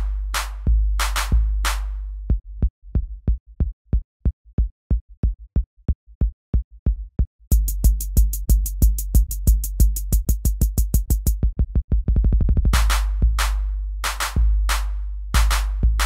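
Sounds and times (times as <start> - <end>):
electronic music with drum-machine beat: 0.0 - 2.0, 7.5 - 16.0.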